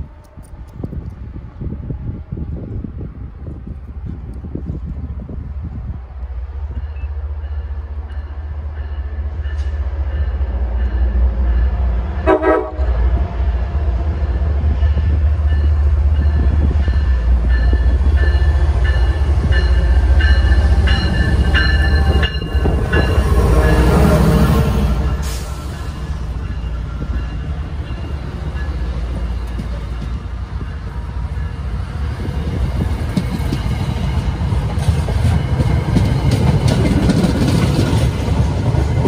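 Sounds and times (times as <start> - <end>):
train rumbling: 0.0 - 39.0
train horn toot: 12.2 - 13.2, 21.6 - 25.8
wheels ringing and clattering on rails: 13.1 - 39.0.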